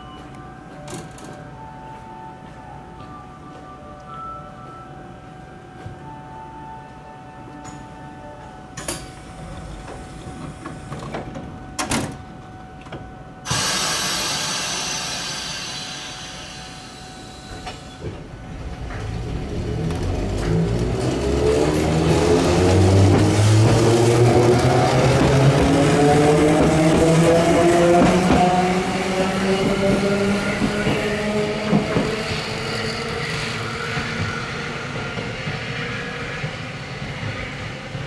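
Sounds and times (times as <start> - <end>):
tram motor whine rising: 13.4 - 38.0
air hiss burst: 13.5 - 18.0.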